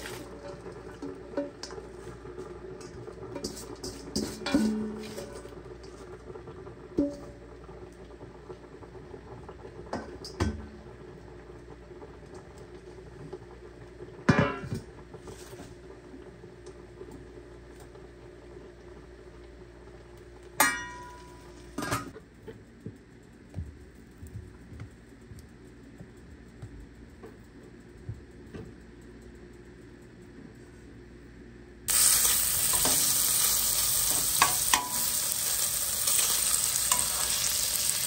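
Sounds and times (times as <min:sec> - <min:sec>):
steady low hum: 0:00.0 - 0:38.0
utensils clanging on pots: 0:03.4 - 0:05.5, 0:14.3 - 0:14.8, 0:20.6 - 0:22.2, 0:31.9 - 0:38.0.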